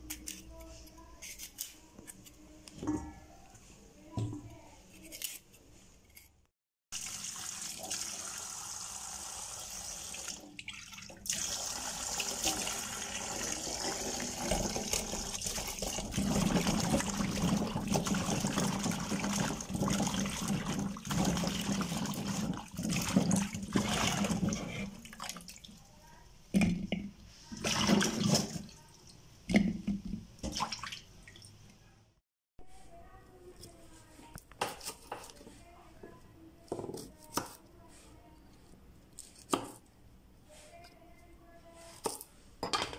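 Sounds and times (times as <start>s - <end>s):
tap water running into steel bowl: 7.0s - 24.5s.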